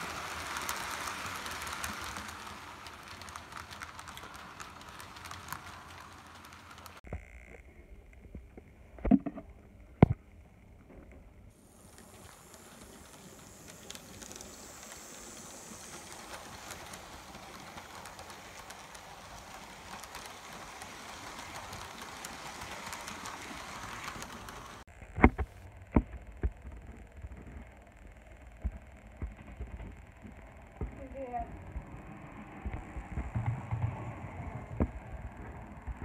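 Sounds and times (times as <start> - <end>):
model train motor whirring: 0.0 - 7.0, 11.6 - 24.9.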